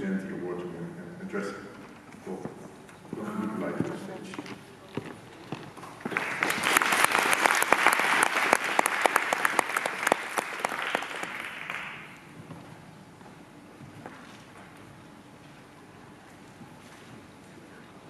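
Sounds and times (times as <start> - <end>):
audience applauding: 6.0 - 12.2.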